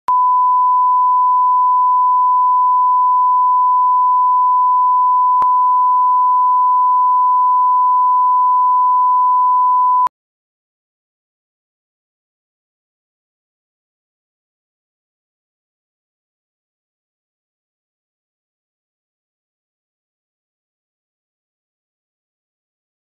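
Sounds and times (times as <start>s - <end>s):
steady reference tone beep: 0.1s - 10.1s.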